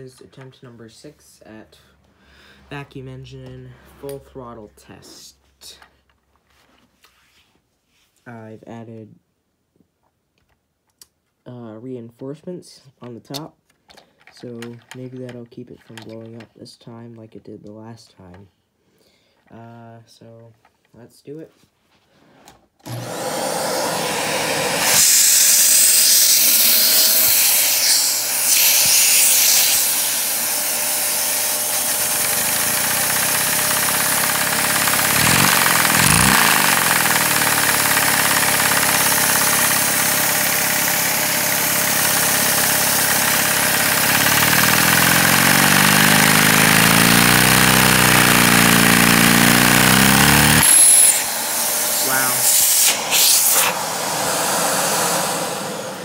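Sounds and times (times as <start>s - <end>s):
vacuum air hiss: 23.5s - 38.2s, 50.6s - 56.0s
engine rapid clattering: 31.8s - 50.7s.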